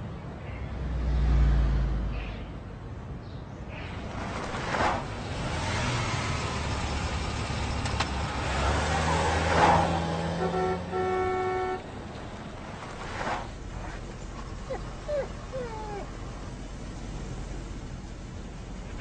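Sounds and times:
traffic rumble: 0:00.0 - 0:19.0
car horn honking: 0:10.2 - 0:11.9.

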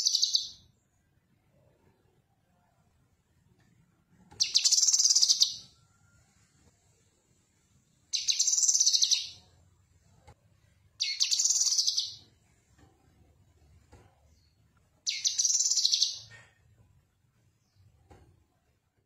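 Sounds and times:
bird twittering: 0:04.4 - 0:05.6, 0:08.1 - 0:09.4, 0:11.0 - 0:12.2, 0:15.1 - 0:16.3.

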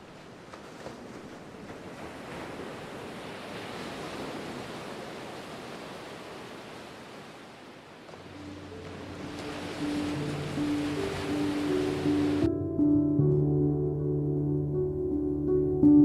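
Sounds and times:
sea waves washing: 0:00.0 - 0:12.5.

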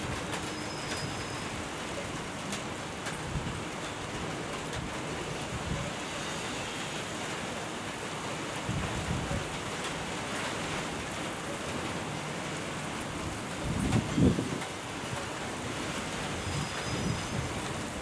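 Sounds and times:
steady rain falling: 0:00.0 - 0:18.0
thunder rumble: 0:13.2 - 0:14.7.

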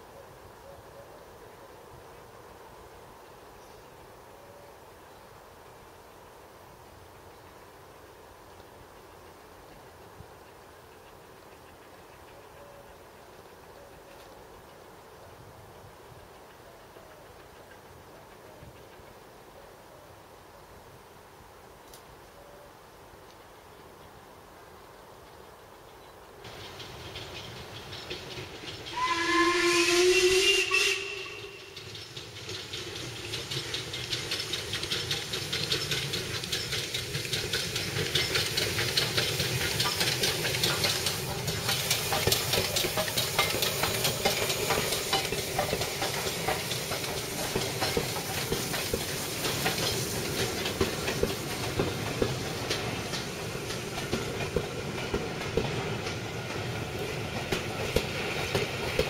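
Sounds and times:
train running past: 0:00.0 - 0:20.7, 0:24.6 - 0:59.0
wheels clicking over rail joints: 0:26.0 - 0:59.0
steam locomotive whistle: 0:28.9 - 0:31.8.

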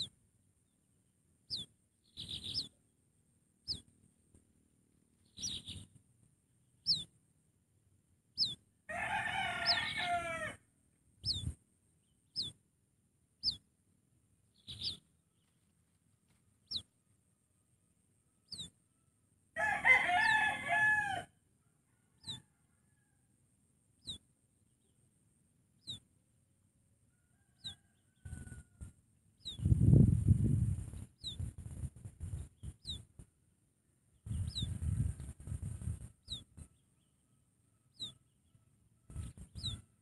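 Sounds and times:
rooster crowing: 0:08.9 - 0:10.6, 0:19.6 - 0:23.3, 0:27.1 - 0:28.9.

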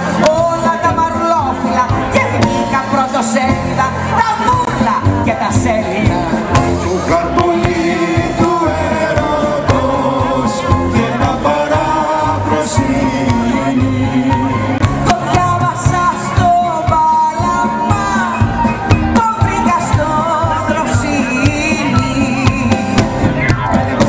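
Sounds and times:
live band playing pop song: 0:00.0 - 0:24.0
steady drum beat: 0:00.0 - 0:24.0
voices singing together: 0:05.8 - 0:18.6.

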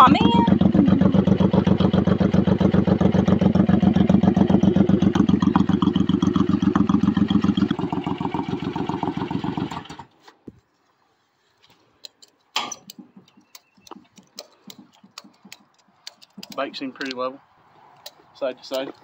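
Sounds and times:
motorcycle engine idling: 0:00.0 - 0:10.1.

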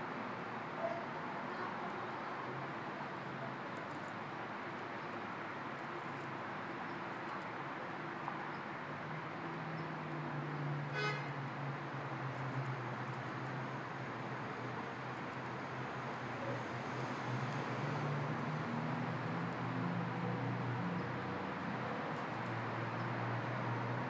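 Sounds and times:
outdoor traffic noise: 0:00.0 - 0:24.0.

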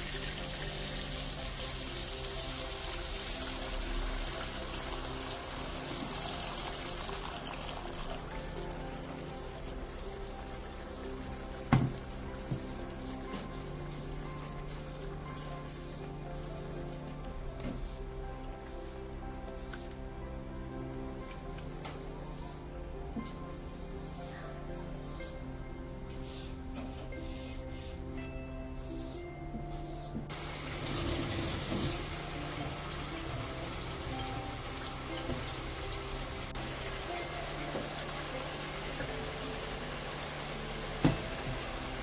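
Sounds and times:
liquid pouring into a pan: 0:00.0 - 0:14.8, 0:30.3 - 0:37.1
background music: 0:00.0 - 0:42.0.

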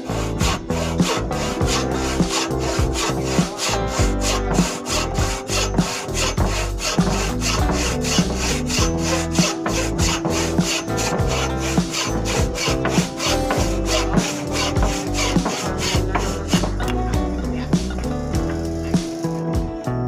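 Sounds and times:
saw rasping through wood: 0:00.0 - 0:19.2.

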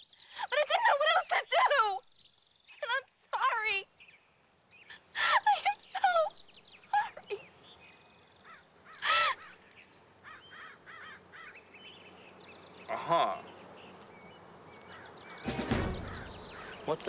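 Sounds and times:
woman sobbing and wailing: 0:04.9 - 0:07.4, 0:09.0 - 0:09.5.

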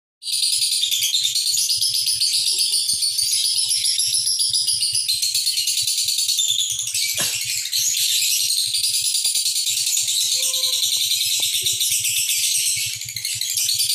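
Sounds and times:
lovebird chattering trill: 0:09.2 - 0:13.9.

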